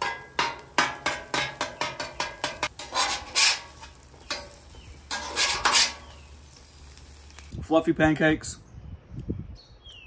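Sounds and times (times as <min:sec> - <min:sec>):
metal spatula clicking on griddle: 0:00.0 - 0:06.1
spatula scraping griddle: 0:00.0 - 0:07.1.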